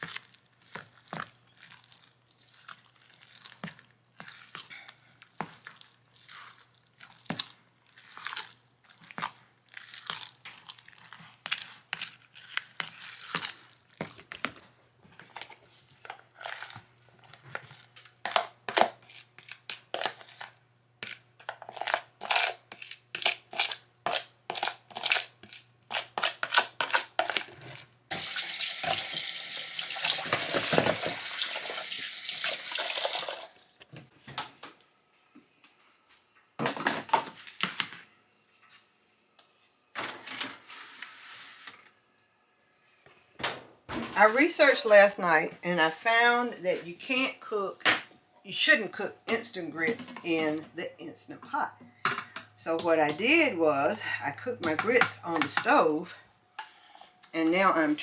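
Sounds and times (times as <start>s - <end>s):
tap water running into sink: 28.1s - 33.5s.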